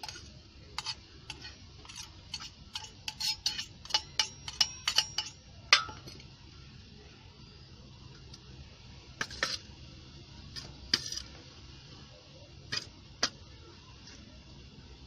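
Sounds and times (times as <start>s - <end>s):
steel bowl clinking: 0.0s - 6.2s
low steady hum: 0.0s - 15.0s.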